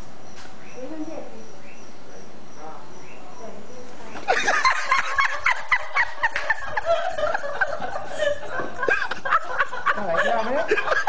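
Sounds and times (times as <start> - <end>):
steady background hiss: 0.0 - 11.0
person cackling laughter: 4.3 - 11.0.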